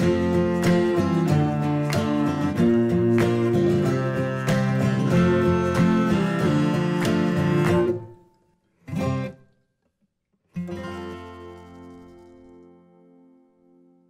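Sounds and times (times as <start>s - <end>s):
strummed acoustic guitar: 0.0s - 9.6s, 10.5s - 14.0s.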